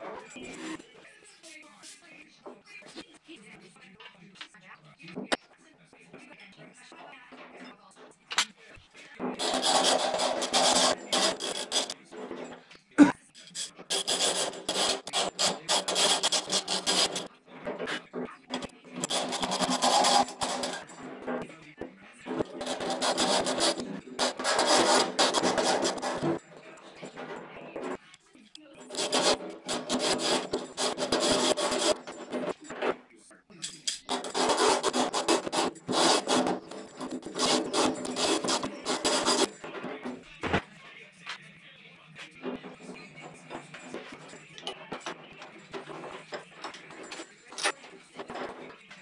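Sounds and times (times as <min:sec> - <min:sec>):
hand ratchet rasping: 0:09.3 - 0:21.5, 0:22.3 - 0:28.0, 0:28.8 - 0:33.0, 0:33.6 - 0:40.3, 0:42.4 - 0:48.9.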